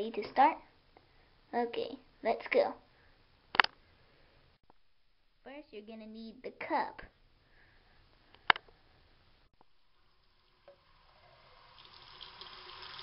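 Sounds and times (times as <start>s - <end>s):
sharp click: 3.5s - 3.8s
faucet water running into cup: 9.9s - 13.0s.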